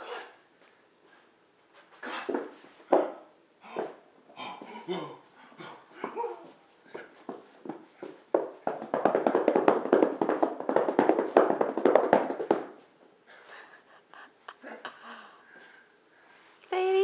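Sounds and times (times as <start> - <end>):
hands patting and scratching carpet: 7.2 - 12.9.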